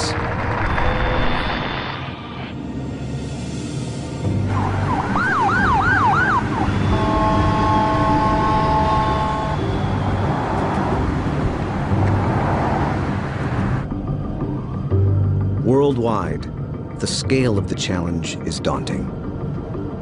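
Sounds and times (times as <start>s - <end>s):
road traffic noise: 0.0s - 14.9s
emergency vehicle siren: 4.4s - 12.1s
multi-note horn: 6.6s - 9.8s.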